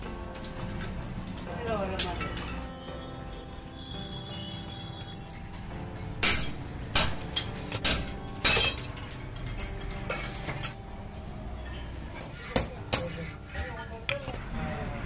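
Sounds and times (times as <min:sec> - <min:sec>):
metal spokes clinking: 0:00.0 - 0:14.5.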